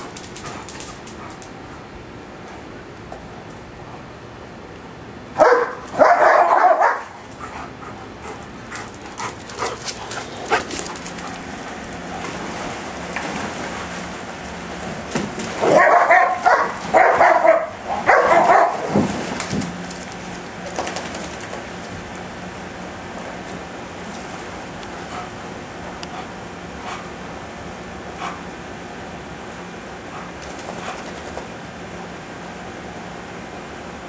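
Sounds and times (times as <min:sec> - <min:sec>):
paws splashing on wet concrete: 0:00.0 - 0:01.8, 0:05.6 - 0:22.0, 0:30.1 - 0:31.5
dogs barking: 0:05.4 - 0:11.6, 0:15.6 - 0:19.1.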